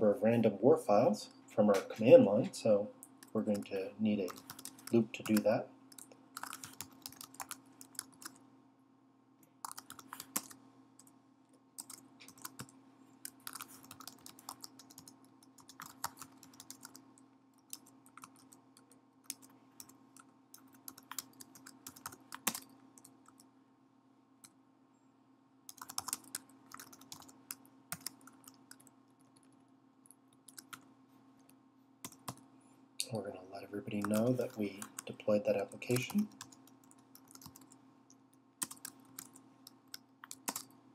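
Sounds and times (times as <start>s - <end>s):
faint steady hum: 0.0s - 40.9s
typing on a keyboard: 3.2s - 8.4s, 9.6s - 11.1s, 11.8s - 23.5s, 25.7s - 29.6s, 32.0s - 32.4s, 35.8s - 37.8s, 38.6s - 40.8s.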